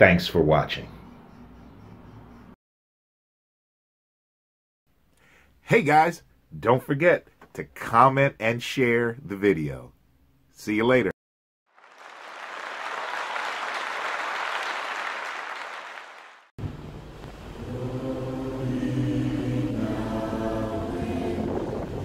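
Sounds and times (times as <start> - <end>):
applause: 11.7 - 16.5
choir singing a cappella: 17.6 - 22.0.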